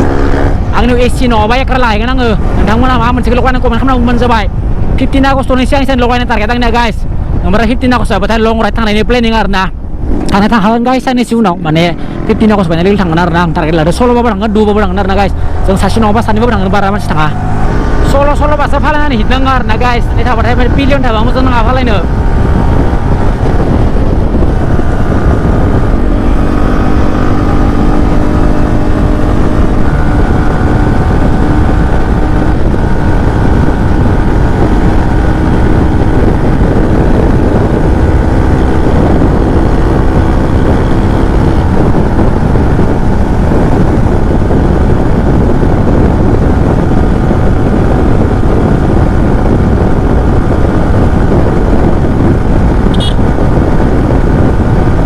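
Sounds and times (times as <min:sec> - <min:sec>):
motorcycle engine cruising: 0:00.0 - 0:55.0
wind rush on microphone: 0:00.0 - 0:55.0.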